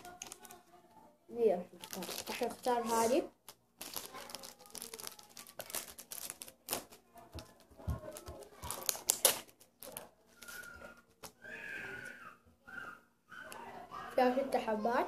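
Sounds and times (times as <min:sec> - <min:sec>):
plastic wrapper crinkling: 0:00.0 - 0:00.6, 0:01.7 - 0:11.6.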